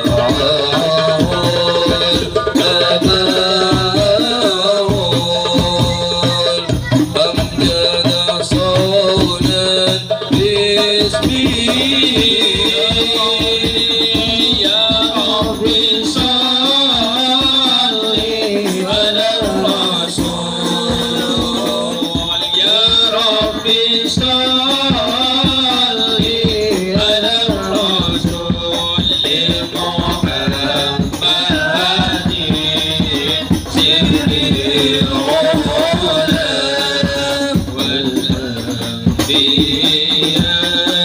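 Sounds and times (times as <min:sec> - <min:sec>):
men chanting through loudspeakers: 0:00.0 - 0:41.0
rhythmic percussion with shaker: 0:00.0 - 0:41.0.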